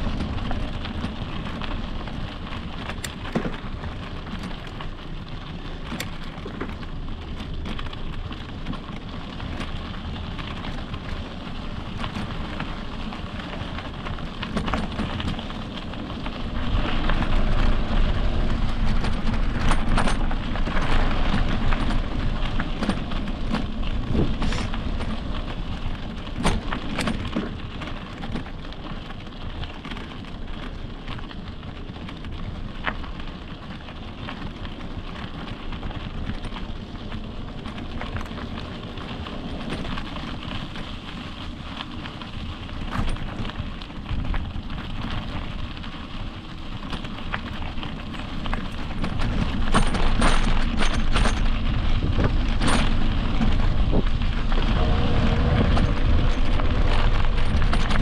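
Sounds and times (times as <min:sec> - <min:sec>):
bike tyres rolling on dirt: 0:00.0 - 0:58.0
sharp clicks and rattles: 0:00.0 - 0:58.0
wind on microphone: 0:16.4 - 0:26.5, 0:48.8 - 0:58.0.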